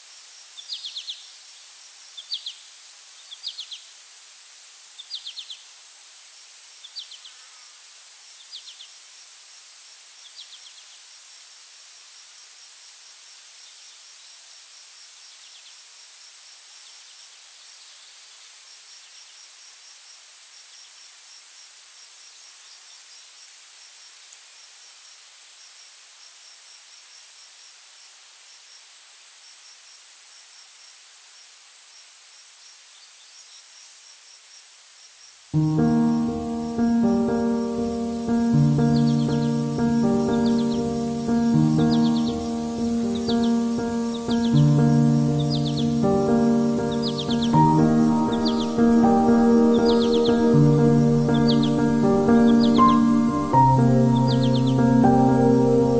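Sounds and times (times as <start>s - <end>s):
insect high-pitched whine: 33.4s - 55.5s
pulsed insect chirping: 35.6s - 55.6s.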